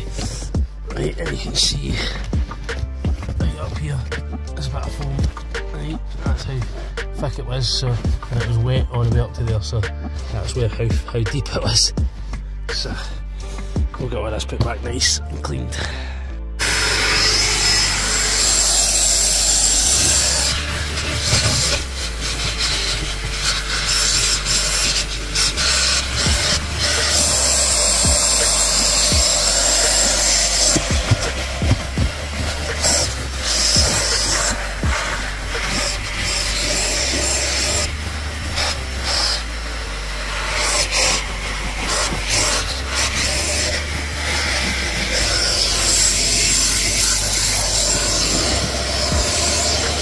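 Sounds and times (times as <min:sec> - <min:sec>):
vacuum nozzle scraping carpet: 0:16.6 - 0:50.0.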